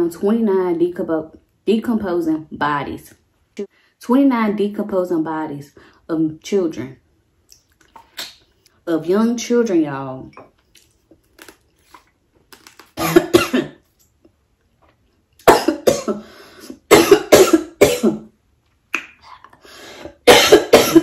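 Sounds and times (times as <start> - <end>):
woman coughing hard: 13.0 - 13.8, 15.4 - 16.3, 16.9 - 18.3, 20.2 - 21.0.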